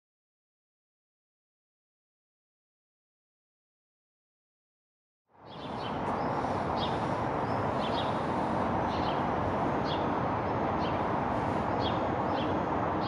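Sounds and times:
distant city traffic: 0:05.3 - 0:13.0
small bird chirping: 0:05.4 - 0:10.1.

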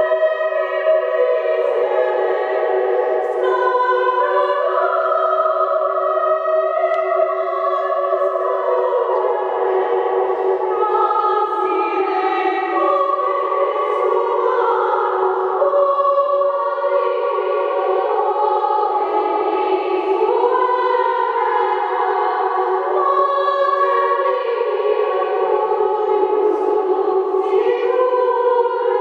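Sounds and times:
women's choir singing in echo: 0:00.0 - 0:29.0.

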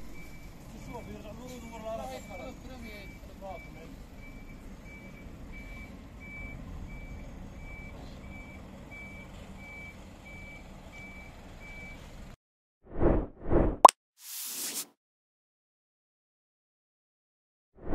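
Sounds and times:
reversing alarm beeping: 0:00.0 - 0:12.0.

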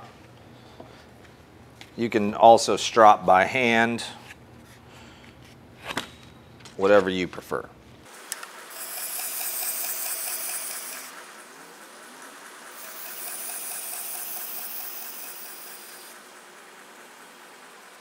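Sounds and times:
belt grinder humming: 0:08.7 - 0:11.2, 0:12.7 - 0:16.3
blade hissing against moving belt: 0:08.7 - 0:11.4, 0:12.7 - 0:16.2.

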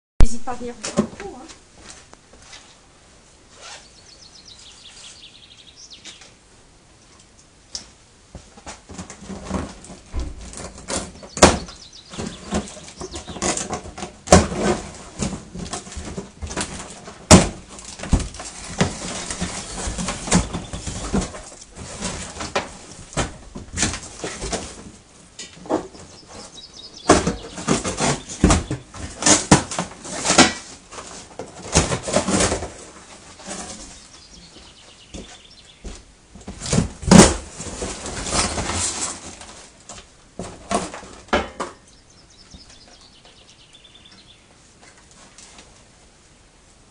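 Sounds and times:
cardboard rustling and tearing: 0:08.8 - 0:25.0, 0:27.1 - 0:34.1, 0:36.4 - 0:41.3
sharp knocks and clatters: 0:40.4 - 0:41.9.

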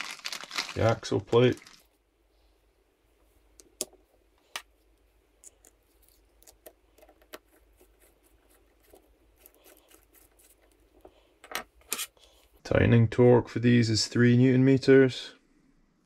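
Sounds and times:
screwdriver clicking and scraping: 0:11.5 - 0:12.2.

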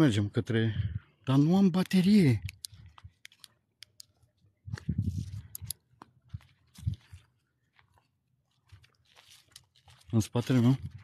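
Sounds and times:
crunches and clicks: 0:01.8 - 0:07.0.

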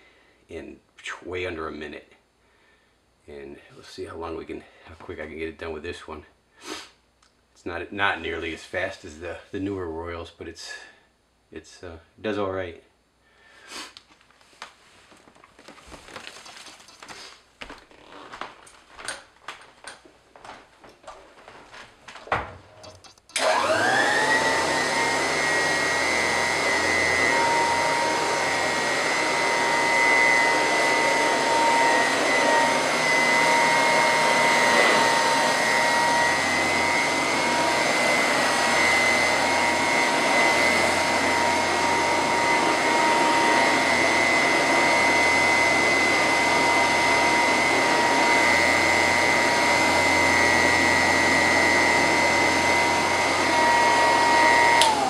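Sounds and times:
vacuum cleaner motor whine: 0:23.3 - 0:55.0.

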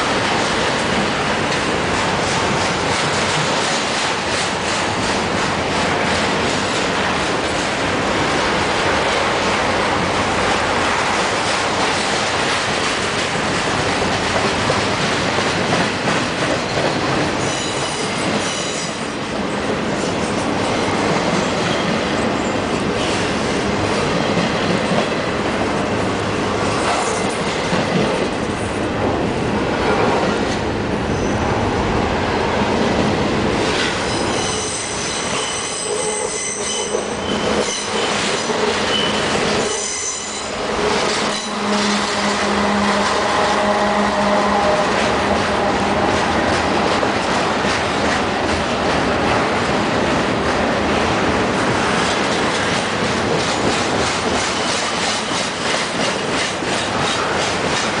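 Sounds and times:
freight train wheels rumbling and rattling: 0:00.0 - 0:58.0
high-pitched wheel squeal: 0:34.1 - 0:38.2, 0:38.9 - 0:40.5.

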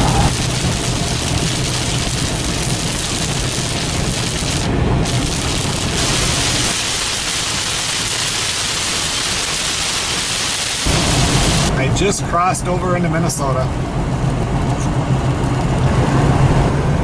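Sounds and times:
heavy rain on car roof: 0:00.0 - 0:11.7
road and engine rumble: 0:00.0 - 0:17.0.

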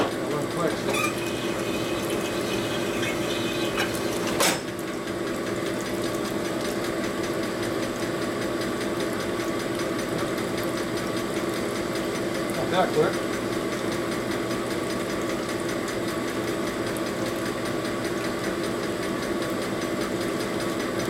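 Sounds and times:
honing machine humming: 0:00.1 - 0:05.4.

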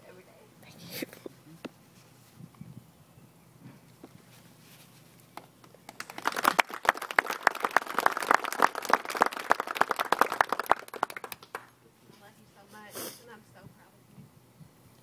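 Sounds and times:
crowd applauding: 0:05.9 - 0:11.7.

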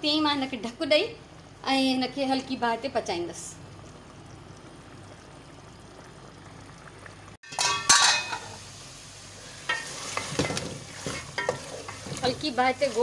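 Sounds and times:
pot simmering: 0:00.0 - 0:13.0
metal clinks against pot: 0:07.5 - 0:08.5
meat sizzling in oil: 0:07.5 - 0:13.0
spoon stirring and scraping: 0:09.7 - 0:13.0.

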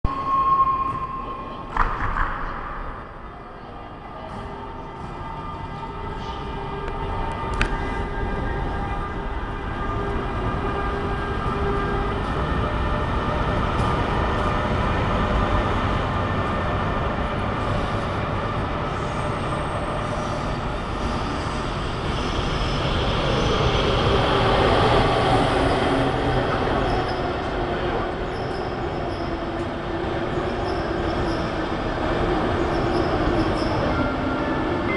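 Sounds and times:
train wheel squeal: 0:00.1 - 0:01.8, 0:17.6 - 0:34.9.

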